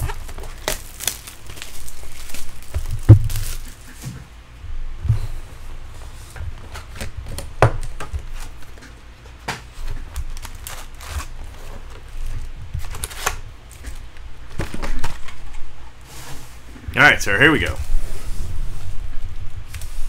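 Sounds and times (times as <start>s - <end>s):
foil wrappers crinkling: 0.0s - 4.0s, 6.0s - 9.0s, 9.6s - 15.7s
packs knocking on a desk: 2.7s - 3.6s.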